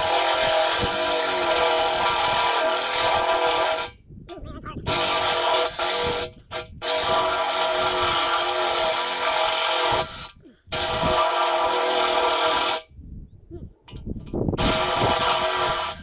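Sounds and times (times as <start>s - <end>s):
cordless drill motor whine: 7.0s - 12.8s.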